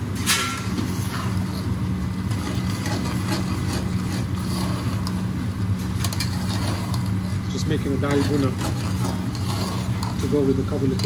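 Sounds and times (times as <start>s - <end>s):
low machine hum: 0.0s - 11.0s
metal ladle scraping saucepan: 5.8s - 11.0s.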